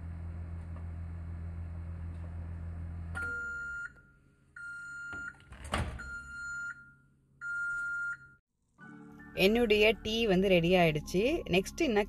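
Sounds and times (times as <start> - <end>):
microwave oven humming: 0.0 - 4.3
microwave beeping: 3.2 - 8.4.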